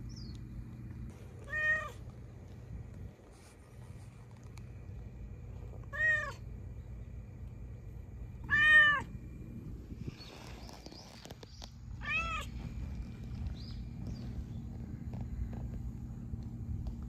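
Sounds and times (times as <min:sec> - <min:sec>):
cat meowing: 0:01.4 - 0:02.0, 0:05.9 - 0:06.4, 0:08.4 - 0:09.1, 0:12.0 - 0:12.5
faint rustling and clicks: 0:02.0 - 0:05.9, 0:10.2 - 0:17.0.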